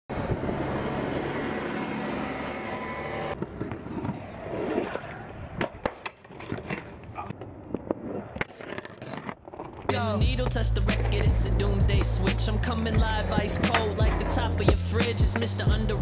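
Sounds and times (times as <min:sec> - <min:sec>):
scooter rolling on concrete: 0:00.1 - 0:16.0
scooter deck clacking on ground: 0:04.8 - 0:15.8.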